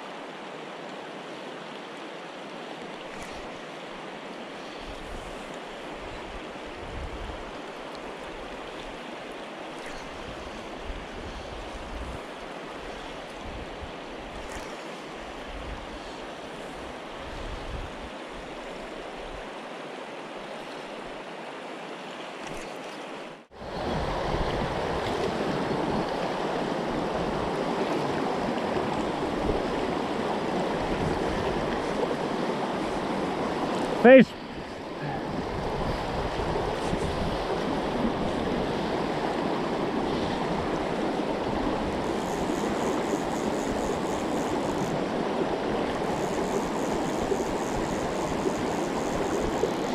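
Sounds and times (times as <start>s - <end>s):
river water rushing: 0.0s - 11.2s, 16.2s - 49.9s
wind on microphone: 6.1s - 7.5s, 10.0s - 12.3s, 16.7s - 18.5s, 23.6s - 34.0s, 34.6s - 49.9s.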